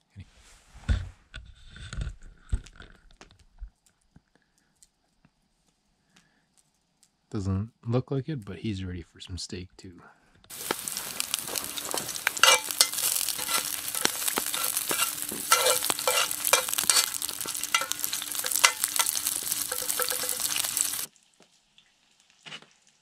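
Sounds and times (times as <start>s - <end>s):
steak sizzling in a pan: 10.5s - 21.3s.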